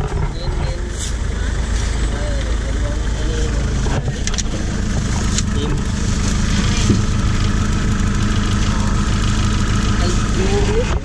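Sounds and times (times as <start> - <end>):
jeep engine running: 0.0 - 11.0
road and wind noise: 0.0 - 11.0.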